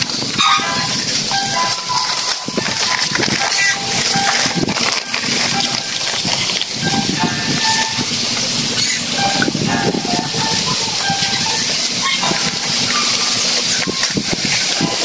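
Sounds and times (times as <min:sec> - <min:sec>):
dry leaves burning and crackling: 0:00.0 - 0:06.9.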